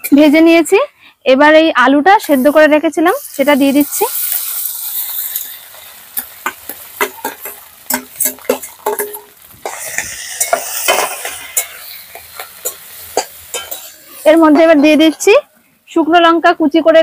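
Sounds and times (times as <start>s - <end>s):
oil sizzling: 2.0s - 16.9s
spatula scraping in a metal pan: 2.2s - 15.4s
metal clicks on pan: 6.2s - 9.4s.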